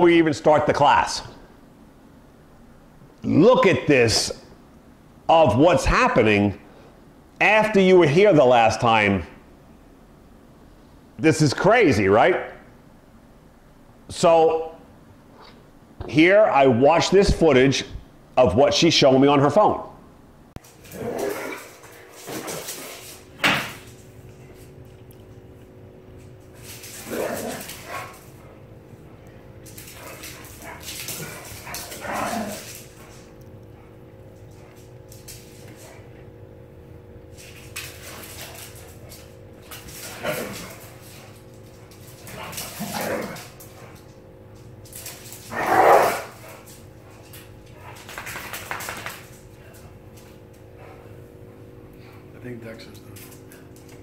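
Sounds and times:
dogs scuffling and mouthing: 20.6 - 29.0, 29.6 - 36.3, 37.3 - 52.2.

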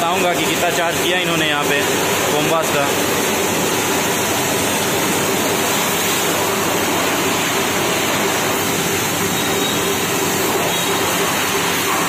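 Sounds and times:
pressure washer spraying water: 0.0 - 12.0.

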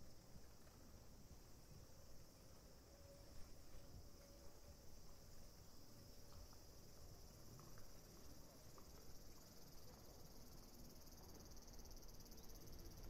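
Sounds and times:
insect chorus pulsing trill: 8.0 - 13.0.

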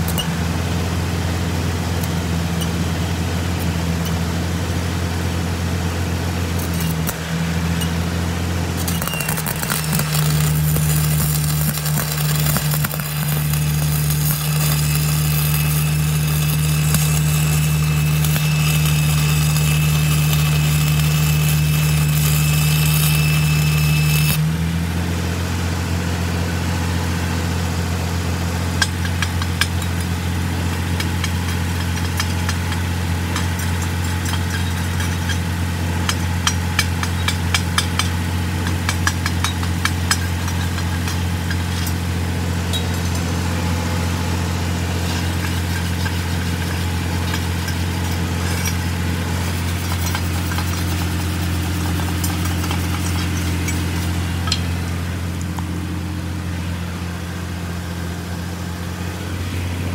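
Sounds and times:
engine humming: 0.0 - 59.9
welding arc crackling and hissing: 6.4 - 24.6, 28.8 - 57.0
hammer chipping metal: 6.6 - 24.5, 28.8 - 43.3, 45.0 - 55.6
wire brush scrubbing steel: 8.7 - 24.4, 44.8 - 55.2.

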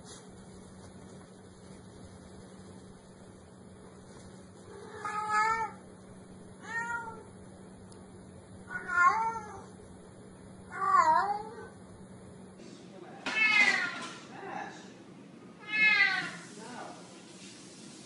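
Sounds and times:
cat meowing: 4.7 - 5.8, 6.6 - 7.3, 8.7 - 9.7, 10.7 - 11.8, 13.3 - 14.2, 15.6 - 16.5.

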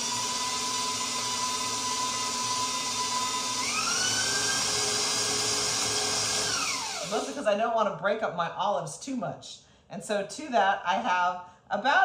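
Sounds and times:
stand mixer motor whine: 0.0 - 7.3.

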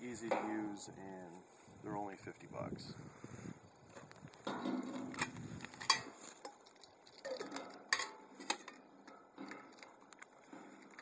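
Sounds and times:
metal camping pots clinking: 0.1 - 0.9, 4.3 - 11.0.

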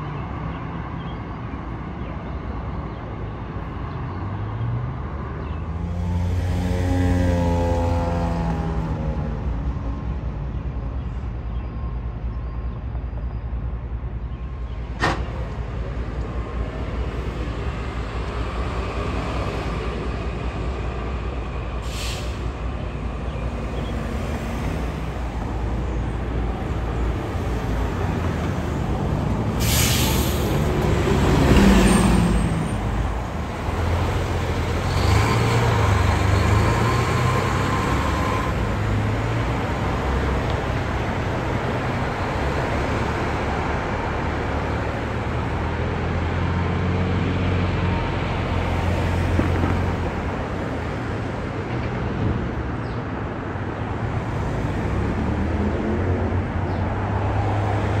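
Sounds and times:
bus engine pulling away: 0.0 - 58.0
street traffic noise: 0.0 - 58.0
air brakes hissing: 21.8 - 22.6, 29.6 - 30.7.

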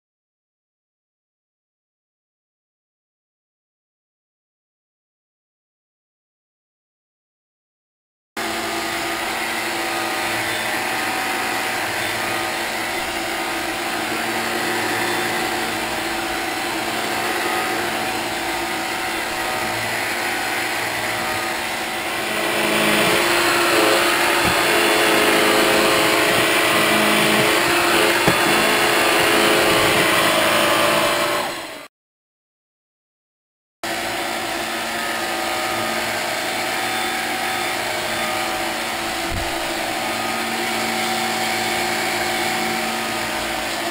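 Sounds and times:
stick vacuum motor whine: 8.4 - 31.9, 33.9 - 43.9.

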